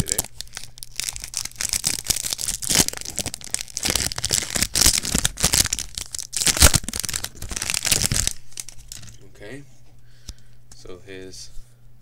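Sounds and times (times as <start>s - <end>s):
foil pack crinkling and tearing: 0.0s - 9.2s.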